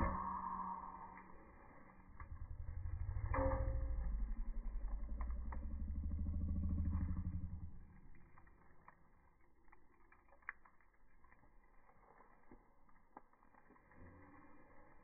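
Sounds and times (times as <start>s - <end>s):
low pulsing engine rumble: 0.0s - 8.4s.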